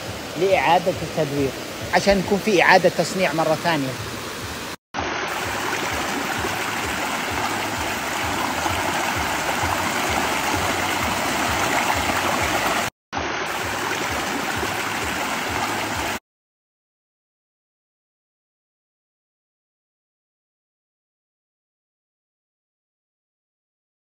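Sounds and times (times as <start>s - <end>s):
stream rushing over stones: 0.0s - 16.2s.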